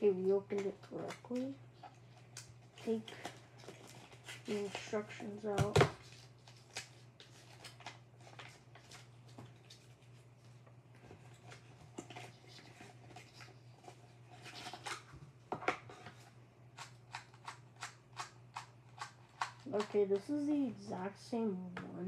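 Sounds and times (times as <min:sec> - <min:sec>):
paper and cardboard rustling: 0:02.7 - 0:15.2.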